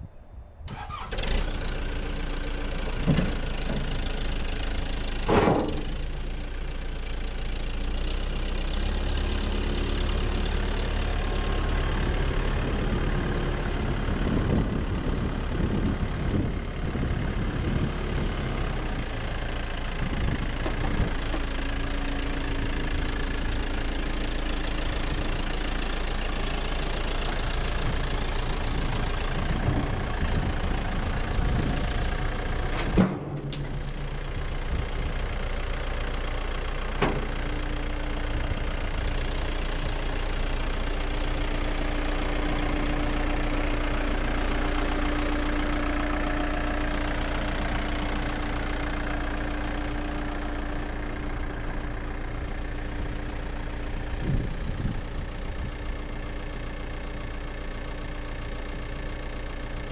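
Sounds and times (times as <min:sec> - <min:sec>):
diesel engine running: 0:00.0 - 0:59.9
sharp clunks: 0:05.2 - 0:06.0, 0:32.7 - 0:34.2, 0:37.0 - 0:37.3.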